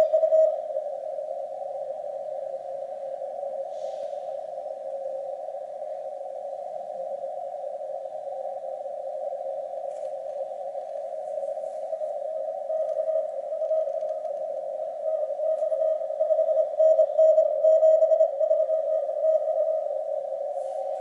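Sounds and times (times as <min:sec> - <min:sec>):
weak morse code signal: 0:00.0 - 0:00.7
radio receiver noise hissing: 0:00.0 - 0:16.3, 0:19.0 - 0:21.0.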